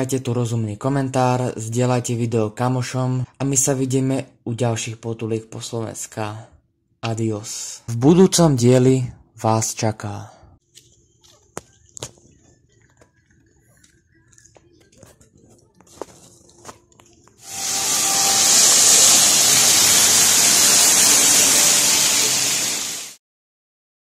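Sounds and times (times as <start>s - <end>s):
fountain water splashing into basin: 17.4s - 23.2s.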